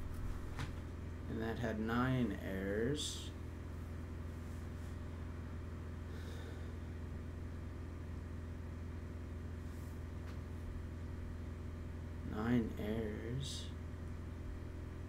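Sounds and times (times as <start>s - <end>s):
low electrical hum: 0.0s - 15.0s
soft breaths: 6.0s - 7.1s.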